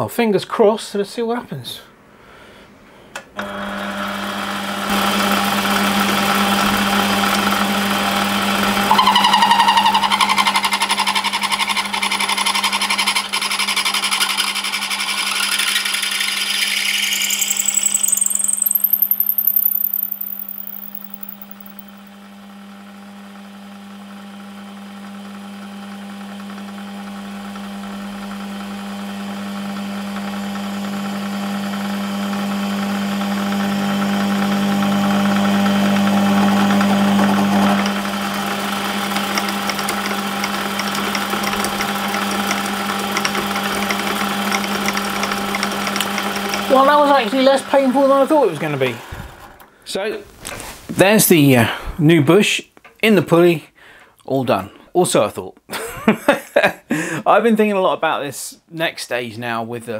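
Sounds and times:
reamer cutting with rising squeal: 8.9 - 11.4, 15.4 - 21.4.

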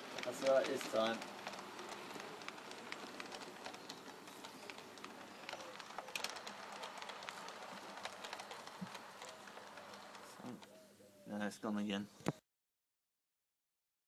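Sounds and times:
model train coaches rattling: 0.0 - 10.8.

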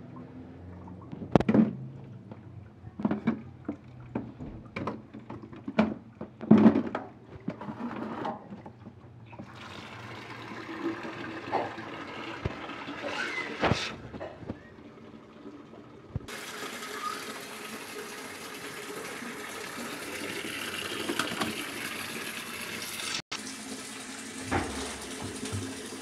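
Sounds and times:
tap water running into basin: 8.5 - 26.0.

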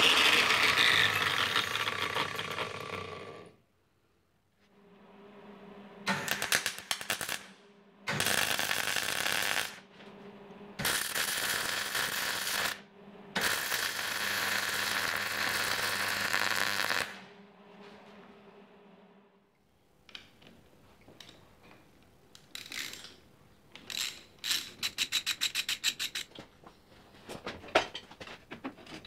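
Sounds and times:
low steady hum: 1.6 - 9.0, 9.6 - 16.3, 17.0 - 22.4
arc welding crackling sizzle: 6.1 - 7.5, 8.1 - 9.8, 10.8 - 12.8, 13.4 - 17.2.

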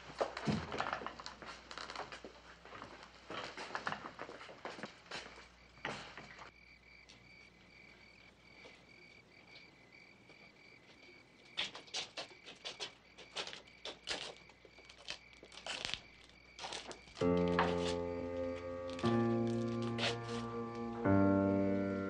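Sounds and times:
footsteps: 0.0 - 7.7, 16.6 - 22.0
crickets chirping: 0.8 - 22.0
music: 17.2 - 22.0.

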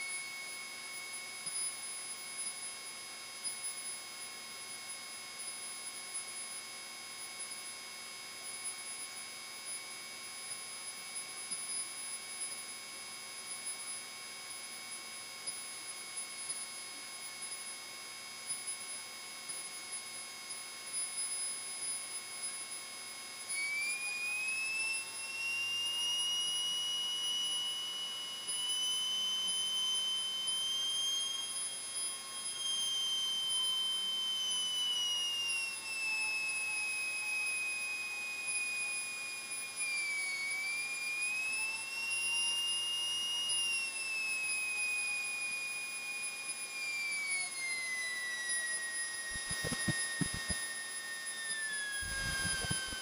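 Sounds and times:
aircraft engine whine: 49.3 - 50.6, 52.0 - 53.0.

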